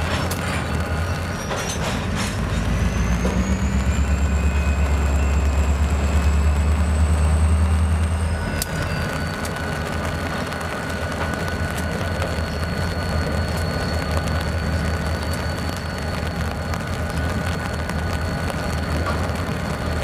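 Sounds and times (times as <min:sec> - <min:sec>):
diesel locomotive engine rumble: 0:00.0 - 0:20.0
high whine rising in pitch: 0:00.0 - 0:20.0.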